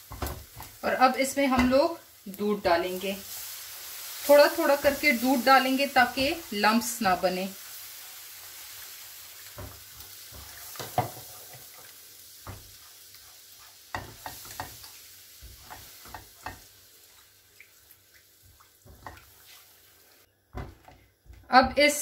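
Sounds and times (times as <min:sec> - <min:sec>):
roux sizzling in a pan: 0:00.0 - 0:21.5
spatula scraping a pan: 0:09.5 - 0:16.7.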